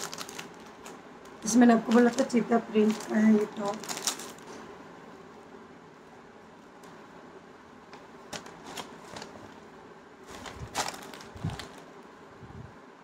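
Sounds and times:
packaging and fabric crinkling: 0:00.0 - 0:04.7, 0:07.9 - 0:12.2.

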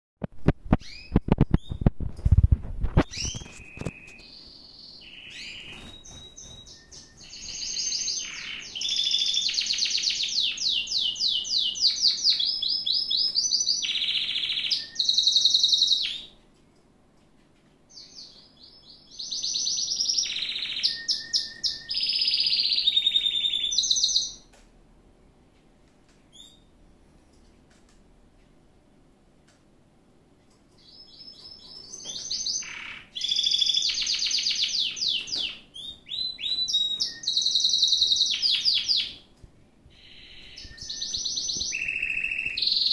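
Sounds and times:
canary singing trills: 0:03.0 - 0:16.4, 0:17.9 - 0:24.5, 0:26.3 - 0:26.8, 0:30.8 - 0:39.3, 0:39.9 - 0:42.9.

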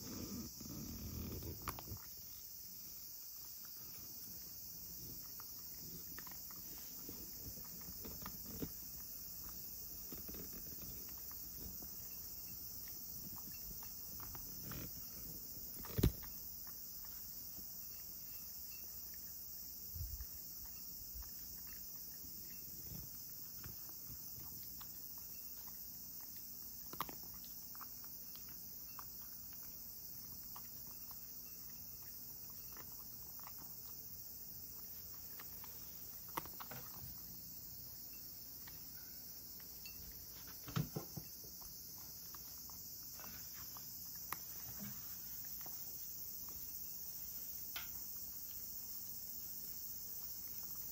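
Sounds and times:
steady high hiss: 0:00.0 - 0:26.8, 0:33.8 - 0:50.9
cat crunching dry kibble: 0:22.9 - 0:37.7.

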